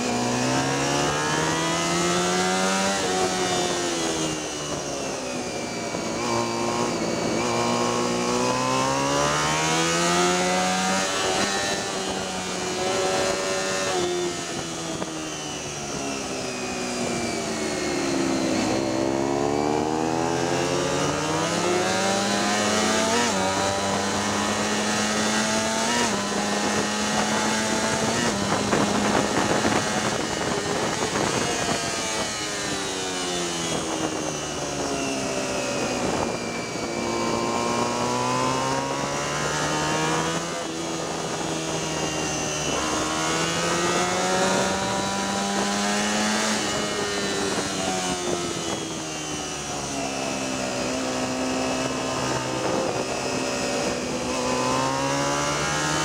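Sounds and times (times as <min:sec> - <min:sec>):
motorcycle engine revving: 0:00.0 - 0:56.0
wind rush on microphone: 0:00.0 - 0:56.0.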